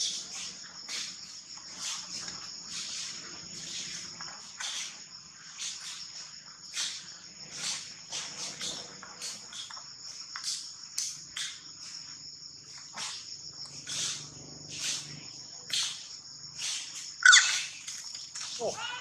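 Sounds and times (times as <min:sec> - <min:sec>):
insects trilling: 0:00.0 - 0:19.0.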